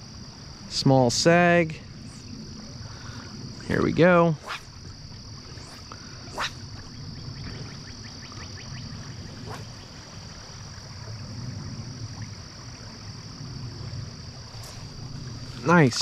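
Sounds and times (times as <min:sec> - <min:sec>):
stream flowing over riffle: 0:07.5 - 0:16.0.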